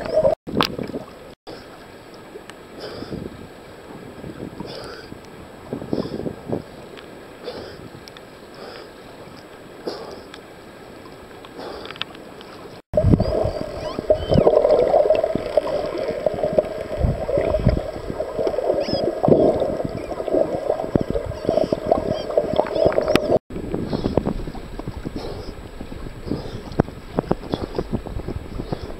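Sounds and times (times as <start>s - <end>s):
underwater rushing water: 0.0s - 28.9s
water lapping: 0.0s - 28.9s
dolphin whistles: 13.0s - 14.6s, 18.8s - 20.1s.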